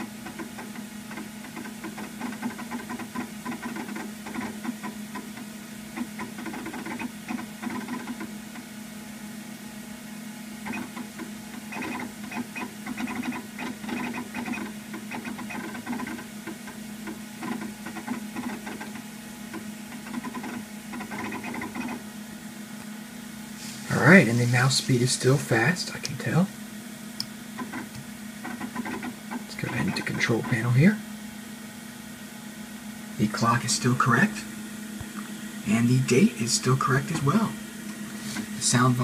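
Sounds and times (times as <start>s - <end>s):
disk drive chattering and ticking: 0.0s - 8.7s, 10.6s - 22.0s, 27.6s - 30.9s
computer hum: 0.0s - 39.0s.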